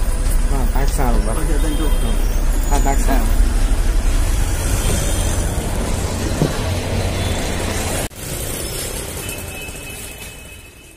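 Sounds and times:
bus engine rumbling: 0:00.0 - 0:08.6
street traffic noise: 0:00.0 - 0:10.9.

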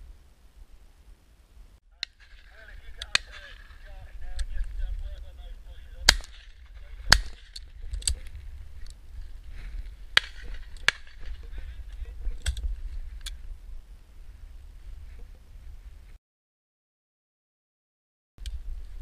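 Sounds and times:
low wind rumble: 0:00.0 - 0:16.2, 0:18.4 - 0:19.0
sharp cracks and clicks: 0:02.0 - 0:04.6, 0:06.0 - 0:09.0
shotgun shot: 0:06.0 - 0:07.6.

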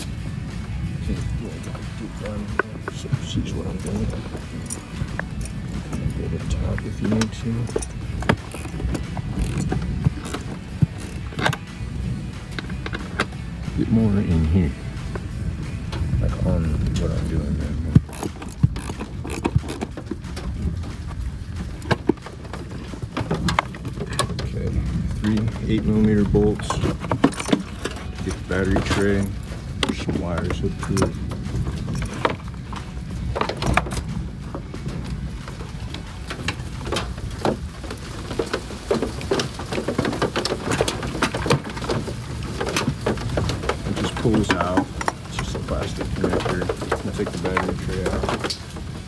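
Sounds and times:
low rumble: 0:00.0 - 0:49.0.

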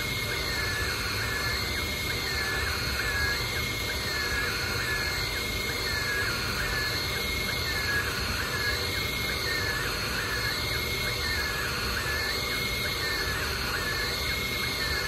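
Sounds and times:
stepper motors whining: 0:00.0 - 0:15.0.

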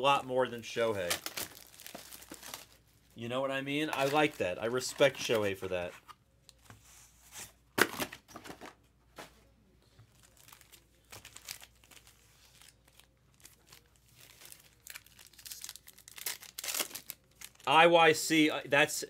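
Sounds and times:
plastic packaging crinkling and tearing: 0:00.9 - 0:02.8, 0:03.9 - 0:05.4, 0:10.1 - 0:17.7.

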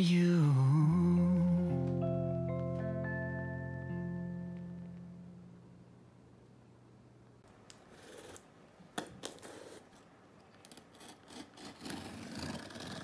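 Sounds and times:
tool scraping along tape seam: 0:10.7 - 0:13.0.

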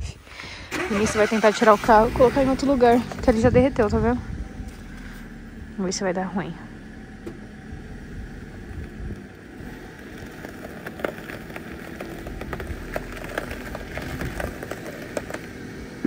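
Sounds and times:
low engine rumble: 0:00.0 - 0:16.0
snow crunching under tyres: 0:00.7 - 0:16.0.

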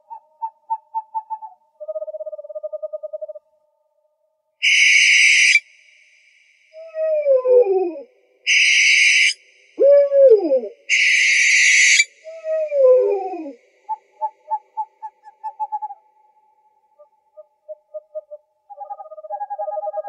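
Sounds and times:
owl hissing screech: 0:04.6 - 0:05.6, 0:08.5 - 0:09.4, 0:10.9 - 0:12.1
owl calls: 0:04.6 - 0:05.7, 0:06.8 - 0:16.0, 0:17.0 - 0:20.0.

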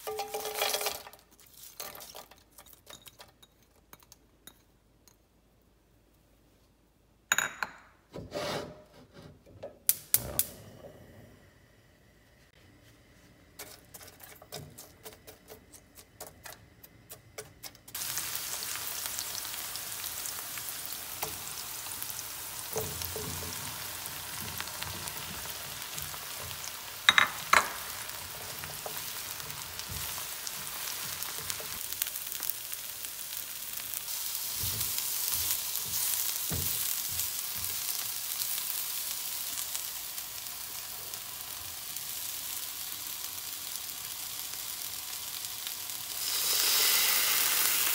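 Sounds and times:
vegetables clattering into pan: 0:00.0 - 0:03.4, 0:22.6 - 0:32.5
onions sizzling in oil: 0:17.9 - 0:47.9.

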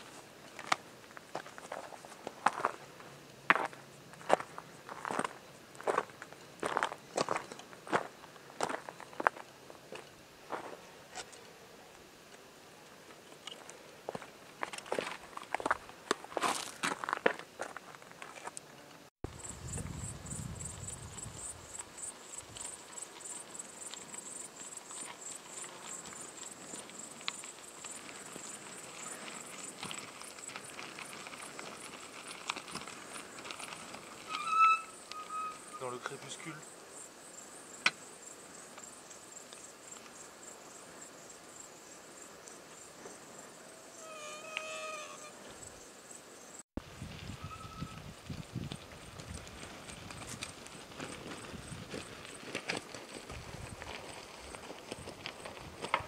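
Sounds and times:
crickets chirping: 0:00.0 - 0:18.5, 0:19.2 - 0:56.0
short squeal call: 0:34.3 - 0:36.1, 0:47.4 - 0:48.0.

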